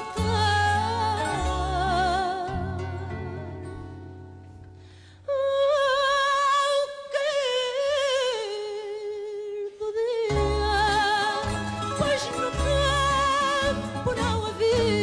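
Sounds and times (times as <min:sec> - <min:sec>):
sustained melody with vibrato: 0:00.0 - 0:05.0, 0:10.3 - 0:15.0.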